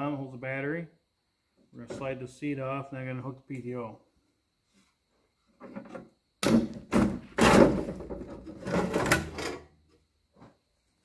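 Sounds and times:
metal scraping and clanking: 7.4 - 9.7.

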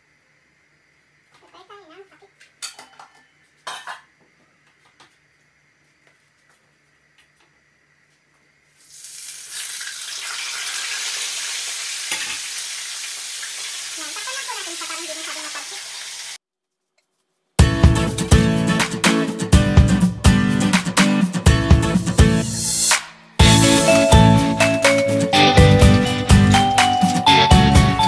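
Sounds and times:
dishes clattering: 2.6 - 4.1, 12.1 - 12.5
food sizzling in hot oil: 8.8 - 16.4.

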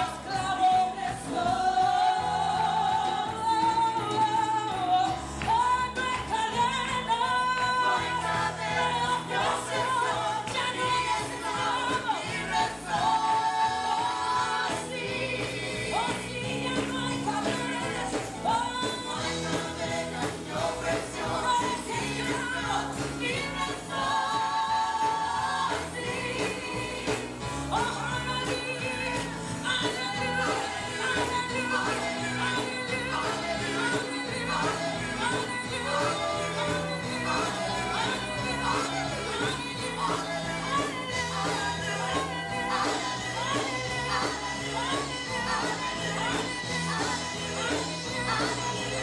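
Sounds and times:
backing singers: 0.0 - 49.0
instrumental accompaniment with bass: 0.0 - 49.0
woman singing through microphone: 0.0 - 49.0.

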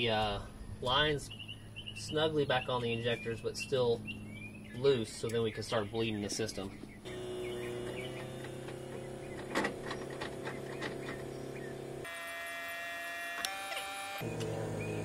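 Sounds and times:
electric fuel pump buzzing: 7.0 - 15.0.

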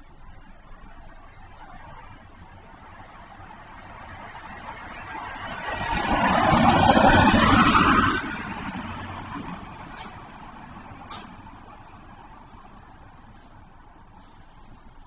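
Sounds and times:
car driving past: 3.0 - 11.7.

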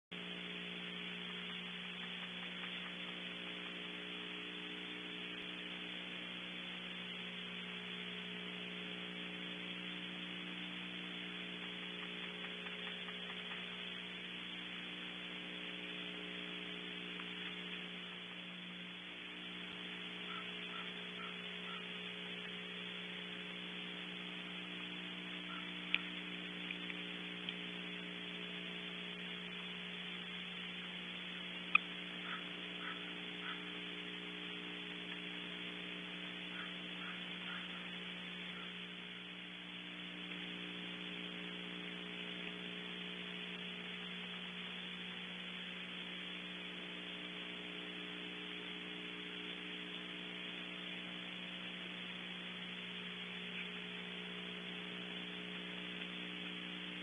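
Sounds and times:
electrical hum and hiss: 0.1 - 57.0
faint ticks: 0.2 - 4.0, 10.5 - 14.2, 16.1 - 18.2, 23.9 - 30.5, 31.1 - 39.3, 46.6 - 57.0.

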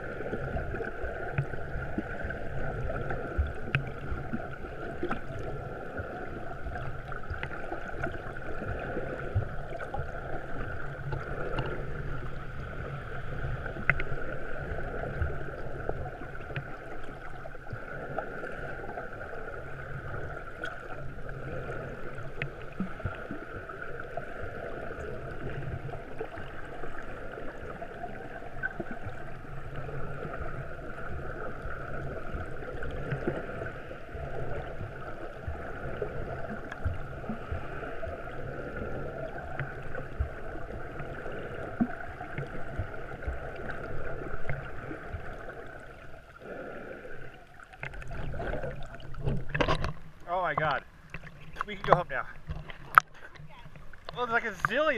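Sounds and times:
muffled underwater rushing hiss: 0.0 - 54.9
faint clicks: 13.8 - 14.1, 48.8 - 54.8.

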